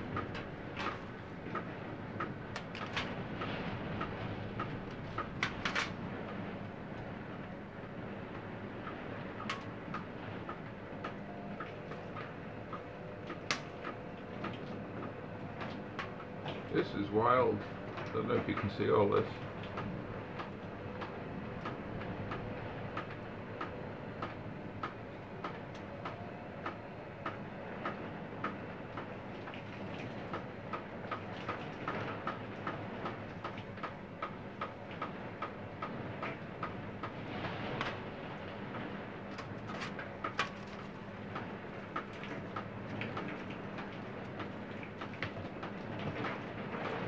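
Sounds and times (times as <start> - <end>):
rain dripping tapping: 0.0 - 47.0
wind-driven rain hiss: 35.2 - 47.0.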